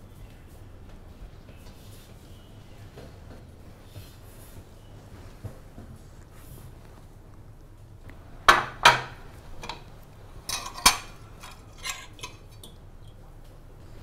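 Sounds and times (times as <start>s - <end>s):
cutlery clinking on ceramic plate: 8.5s - 12.8s.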